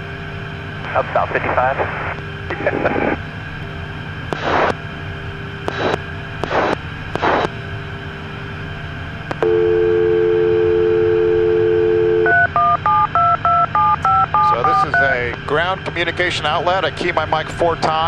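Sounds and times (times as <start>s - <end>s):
cockpit hum: 0.0s - 18.0s
radio static bursts: 0.9s - 3.2s, 4.4s - 4.8s, 5.7s - 7.5s
telephone dial tone: 9.4s - 14.8s
touch-tone dialing beeps: 9.4s - 15.0s.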